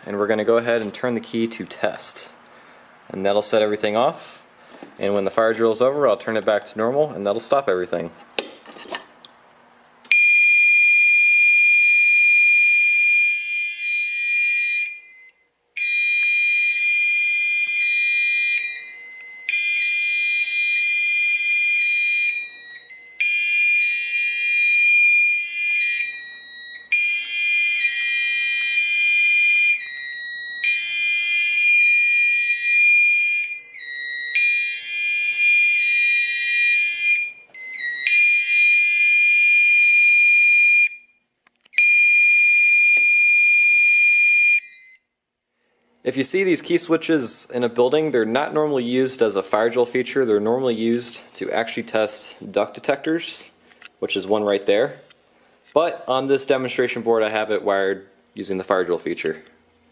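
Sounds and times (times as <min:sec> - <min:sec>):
fire alarm horn tone: 0:10.1 - 0:45.2.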